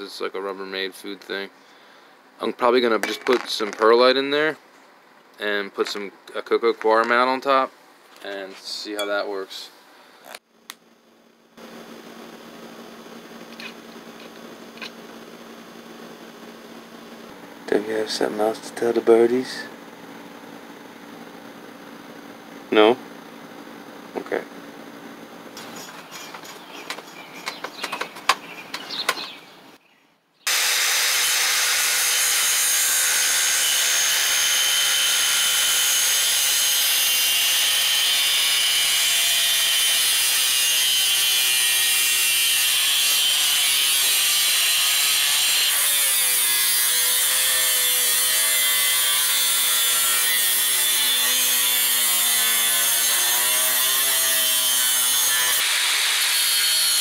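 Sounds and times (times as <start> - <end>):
clicks and knocks of metal tubes: 25.6 - 29.3
angle grinder cutting metal: 30.5 - 57.0.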